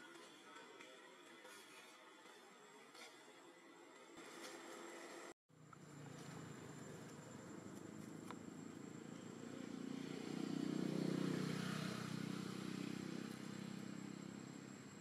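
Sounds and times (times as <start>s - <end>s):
vehicle engine passing: 5.8s - 15.0s.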